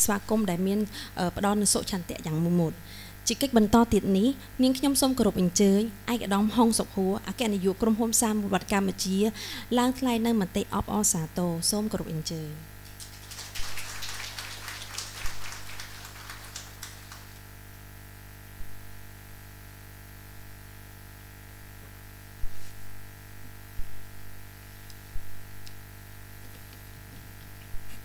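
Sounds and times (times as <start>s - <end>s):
low electrical hum: 0.0s - 28.0s
audience applauding: 12.9s - 17.4s.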